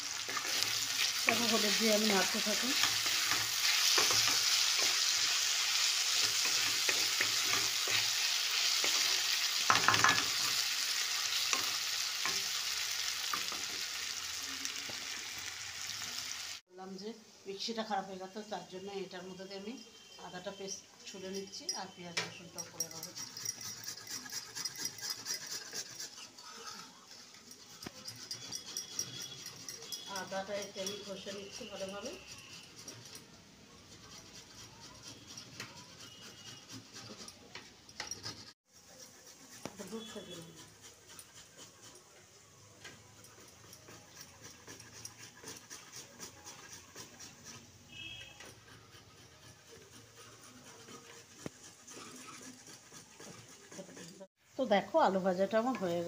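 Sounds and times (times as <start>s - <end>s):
ginger scraping on metal grater: 22.8s - 33.3s, 33.9s - 37.4s, 38.1s - 42.2s, 43.1s - 54.3s
high squeak: 47.4s - 49.3s.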